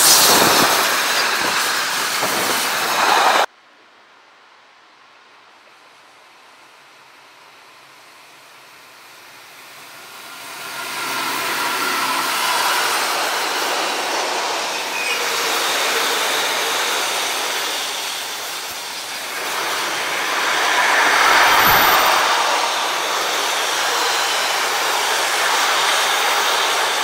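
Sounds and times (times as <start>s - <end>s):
freight train passing: 7.9s - 27.0s
wheels squealing: 11.6s - 27.0s.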